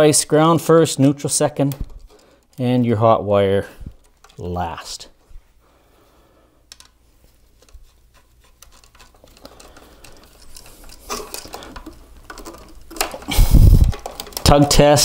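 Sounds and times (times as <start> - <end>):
screwdriver turning a screw: 7.6 - 15.0.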